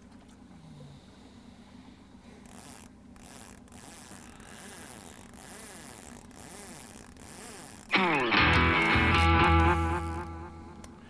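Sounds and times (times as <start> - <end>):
boat motor humming: 1.6 - 11.0
fishing reel being cranked: 2.4 - 10.4.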